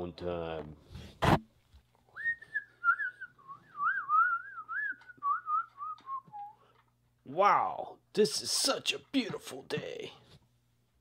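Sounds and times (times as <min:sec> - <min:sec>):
person whistling a tune: 0:02.1 - 0:06.6.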